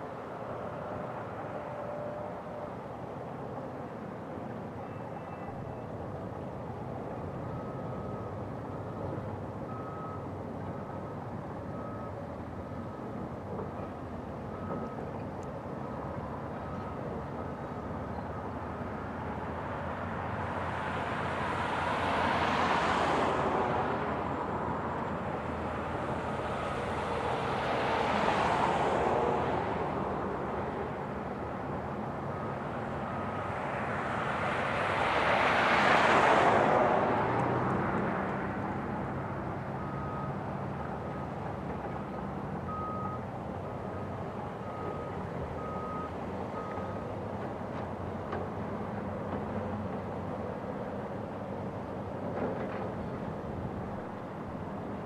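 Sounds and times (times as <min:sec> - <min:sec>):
distant heavy machinery running: 0:37.0 - 0:55.0.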